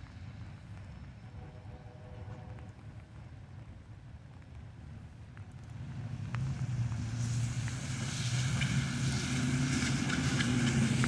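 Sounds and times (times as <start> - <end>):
tyres hissing on wet road: 0.0 - 3.2, 5.5 - 11.0
low engine hum: 0.0 - 11.0.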